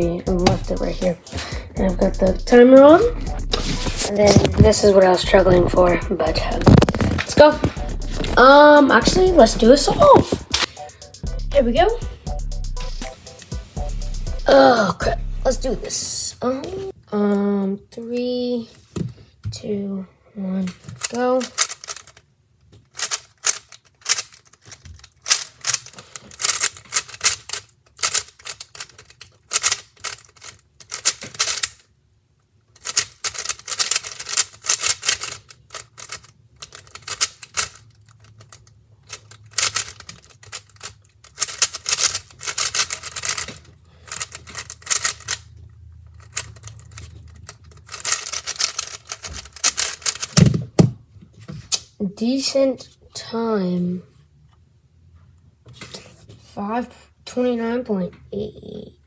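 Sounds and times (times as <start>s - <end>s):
puzzle cube clacking: 0.0s - 11.3s, 20.8s - 31.9s, 32.7s - 51.0s.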